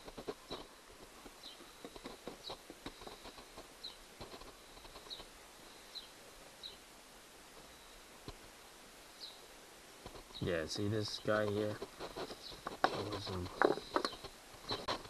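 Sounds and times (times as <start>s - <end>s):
bird chirping: 1.4s - 4.0s, 4.7s - 6.9s, 9.2s - 9.5s, 12.2s - 15.0s.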